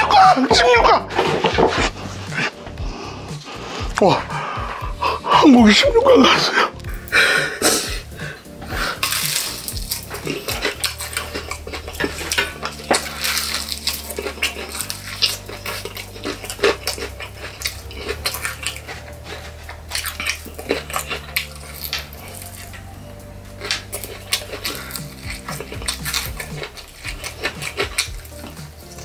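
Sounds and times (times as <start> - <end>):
crunching and chewing food: 0.0 - 29.0
low hum: 0.0 - 29.0.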